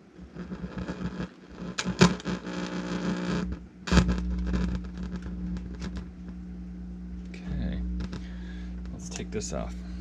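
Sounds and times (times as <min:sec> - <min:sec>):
mains hum through speakers: 0:00.0 - 0:10.0
clicks and crackles: 0:00.3 - 0:06.4, 0:07.2 - 0:09.3.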